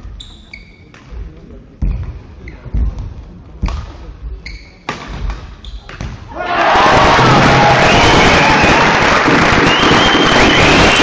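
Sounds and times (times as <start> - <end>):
shoes squeaking on court floor: 0.1 - 1.2, 4.4 - 4.9, 5.6 - 6.1.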